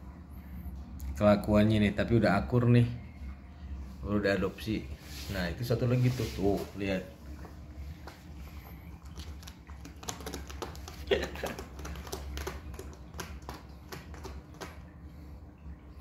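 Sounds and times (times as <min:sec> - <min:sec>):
steady low hum: 0:00.0 - 0:16.0
kittens' paws tapping and scratching: 0:07.4 - 0:15.0.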